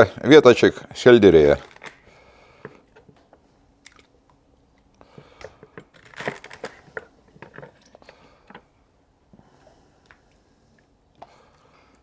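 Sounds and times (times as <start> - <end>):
crisp crunching and rustling: 5.9 - 7.1.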